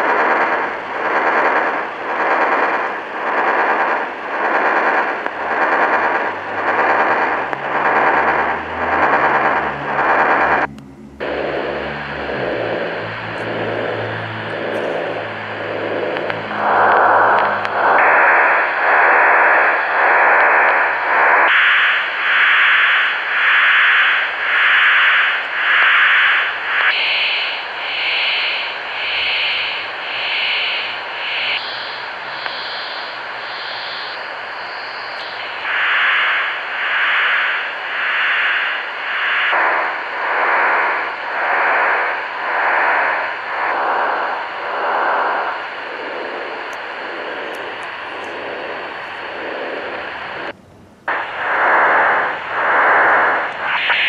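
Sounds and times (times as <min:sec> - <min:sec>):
hissing warping radio data signal: 0:00.0 - 0:54.0.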